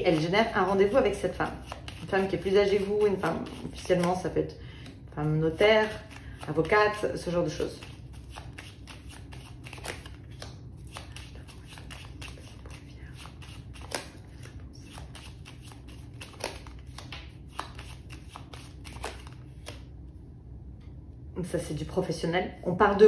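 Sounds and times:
low steady hum: 0:00.0 - 0:23.0
playing cards snapping and flicking: 0:07.8 - 0:19.9.

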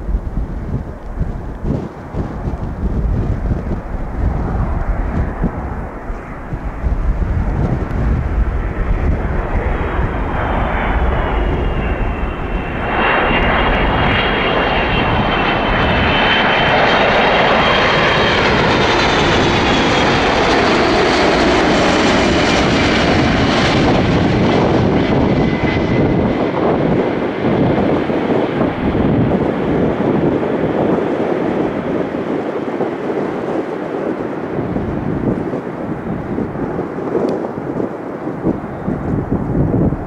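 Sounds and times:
high engine whine: 0:00.0 - 0:32.0
jet engines roaring: 0:00.0 - 0:40.0.

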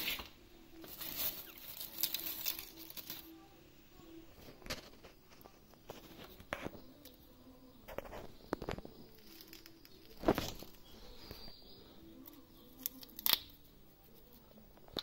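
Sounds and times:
paper rustling and crinkling: 0:00.0 - 0:03.4, 0:04.4 - 0:07.2, 0:07.8 - 0:11.6.

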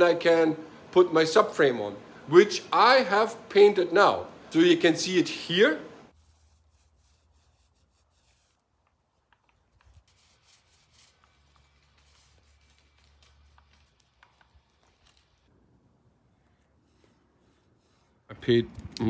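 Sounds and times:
light rubbing sounds: 0:06.1 - 0:15.5, 0:16.1 - 0:19.0.

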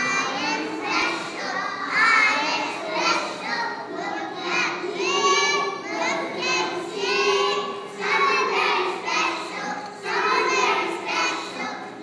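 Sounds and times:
young children singing: 0:00.0 - 0:12.0.

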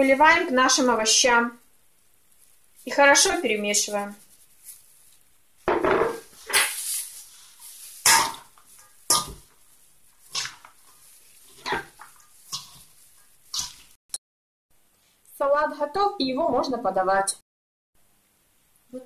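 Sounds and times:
vegetables tossed in metal bowl: 0:02.4 - 0:14.0.

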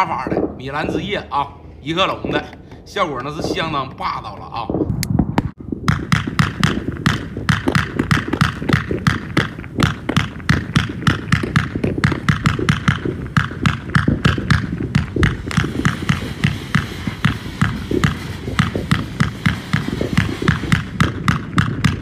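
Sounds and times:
fireworks firing thumps and pops: 0:05.1 - 0:22.0.

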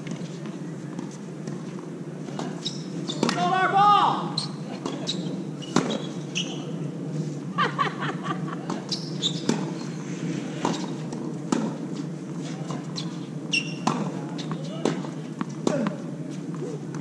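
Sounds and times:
tennis balls struck and bouncing: 0:02.3 - 0:03.5, 0:05.7 - 0:06.1, 0:08.7 - 0:09.8, 0:10.6 - 0:12.9, 0:13.6 - 0:17.0
short squeaks: 0:02.6 - 0:03.3, 0:08.9 - 0:09.9, 0:13.0 - 0:14.6.

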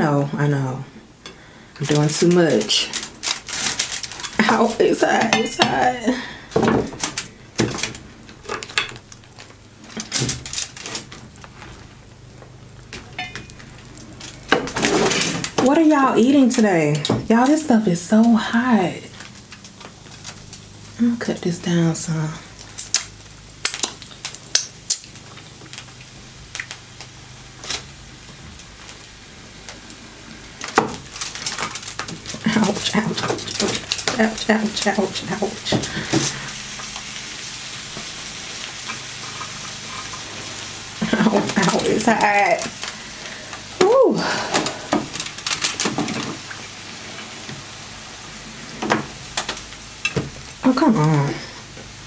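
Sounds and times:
hands handling crab legs: 0:42.6 - 0:46.4.

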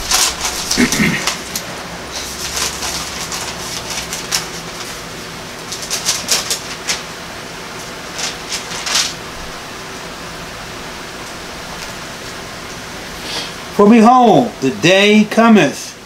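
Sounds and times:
book pages rustling: 0:00.0 - 0:05.0, 0:05.6 - 0:07.1, 0:07.8 - 0:09.2
steady hiss: 0:00.0 - 0:16.0.

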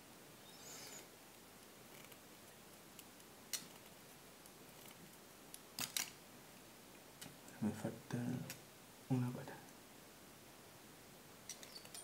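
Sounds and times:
low hiss: 0:00.0 - 0:12.0.

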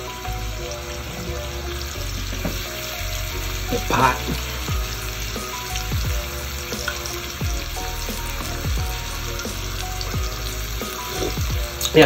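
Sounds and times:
meat sizzling on a grill plate: 0:00.0 - 0:12.0
music playing: 0:00.0 - 0:12.0.

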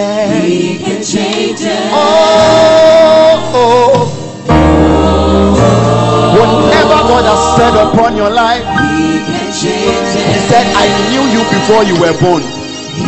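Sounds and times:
man singing lead: 0:00.0 - 0:00.8, 0:01.9 - 0:04.2, 0:06.2 - 0:13.0
backing vocalists singing: 0:00.0 - 0:13.0.

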